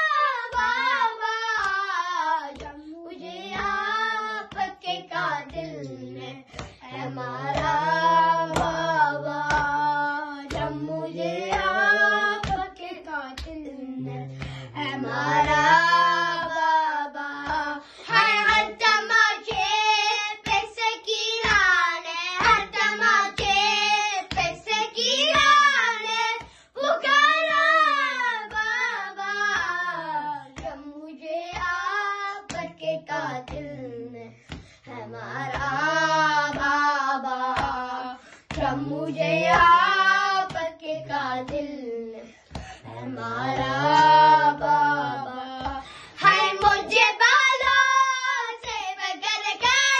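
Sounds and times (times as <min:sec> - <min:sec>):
boys chanting in unison: 0:00.0 - 0:49.9.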